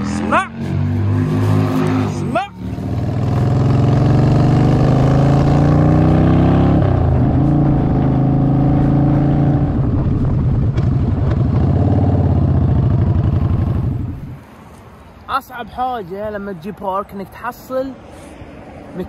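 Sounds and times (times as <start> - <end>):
motorcycle engine accelerating: 0.0 - 14.4.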